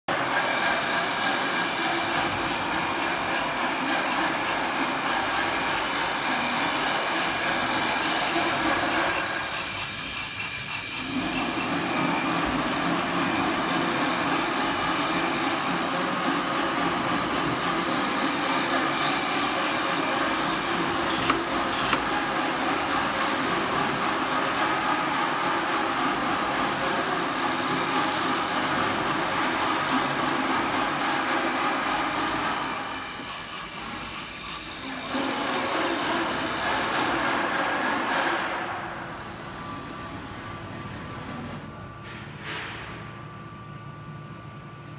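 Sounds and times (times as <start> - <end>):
cutting machine whirring: 0.1 - 33.8.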